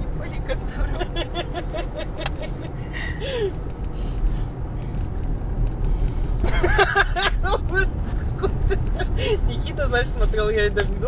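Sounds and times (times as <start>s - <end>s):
road and engine rumble in car: 0.0s - 11.0s.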